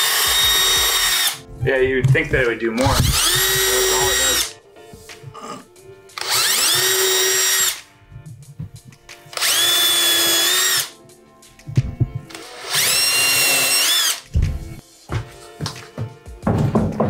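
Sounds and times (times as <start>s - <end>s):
cordless drill boring into wood: 0.0s - 1.4s, 2.9s - 4.5s, 6.2s - 7.8s, 9.4s - 10.9s, 12.3s - 14.2s.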